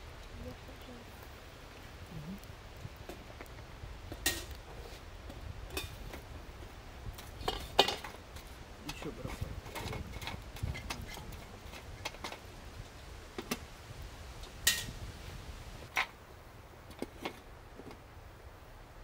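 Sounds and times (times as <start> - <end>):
pots and utensils clinking: 4.2 - 4.5, 7.2 - 12.4.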